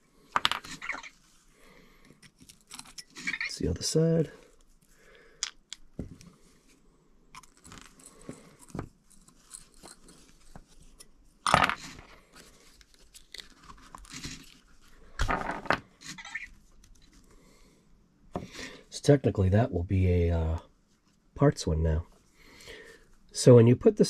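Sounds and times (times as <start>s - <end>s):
clicks and taps of small parts: 5.4s - 5.9s.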